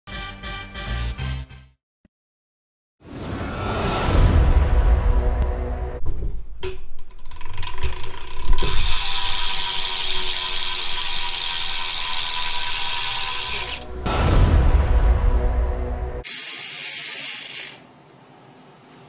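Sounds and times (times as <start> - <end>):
bicycle hub freewheel clicking: 7.1 - 13.8, 16.2 - 17.9.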